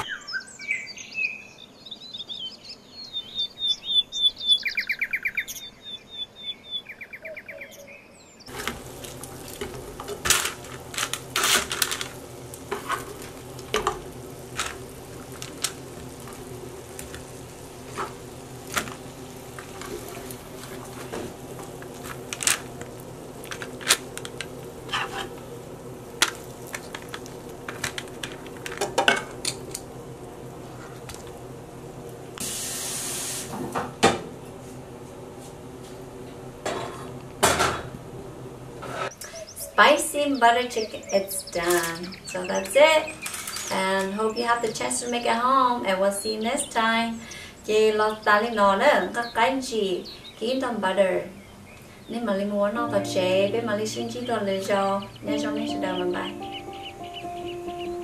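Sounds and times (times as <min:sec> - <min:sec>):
small bird chirping: 0:00.0 - 0:08.5, 0:39.1 - 0:45.4, 0:46.5 - 0:50.5, 0:54.0 - 0:58.0
wooden spoon scraping skillet: 0:08.5 - 0:16.4, 0:23.4 - 0:25.4
faint sizzle: 0:08.5 - 0:58.0.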